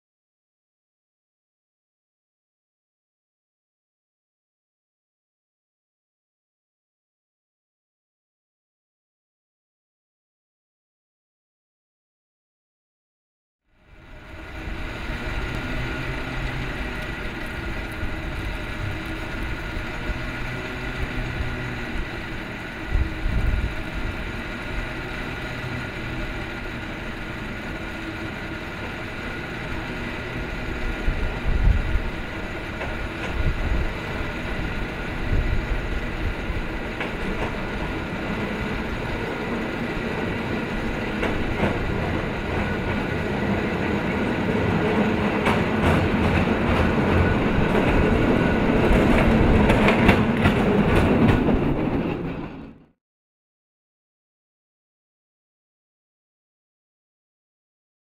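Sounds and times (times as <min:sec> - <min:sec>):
cable car rumble and clatter: 0:13.8 - 0:52.9.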